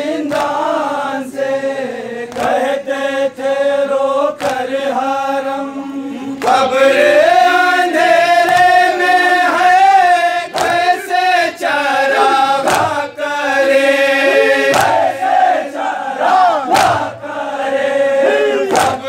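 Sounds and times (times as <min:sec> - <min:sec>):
men chanting a lament: 0:00.0 - 0:19.0
hands slapping chests: 0:00.2 - 0:00.8, 0:02.3 - 0:02.8, 0:04.4 - 0:04.8, 0:06.4 - 0:06.7, 0:08.4 - 0:09.0, 0:10.5 - 0:11.6, 0:12.2 - 0:13.2, 0:14.4 - 0:15.4, 0:16.6 - 0:17.2, 0:18.6 - 0:19.0.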